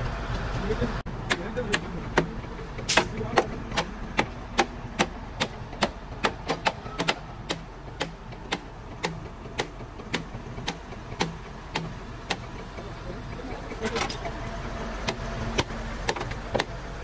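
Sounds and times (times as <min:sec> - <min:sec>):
steady low hum: 0:00.0 - 0:17.0
sharp knocks: 0:01.2 - 0:12.6.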